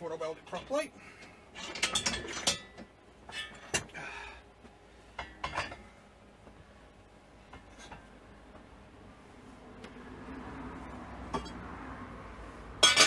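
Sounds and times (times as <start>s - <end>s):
metal clanks and clinks: 1.5s - 3.9s, 5.2s - 5.8s, 12.8s - 13.0s.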